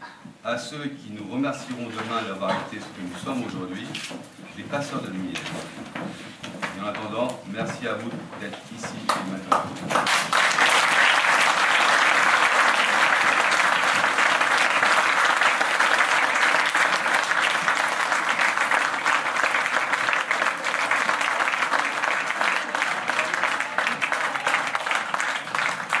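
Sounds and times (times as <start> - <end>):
audience applauding: 9.1 - 26.0.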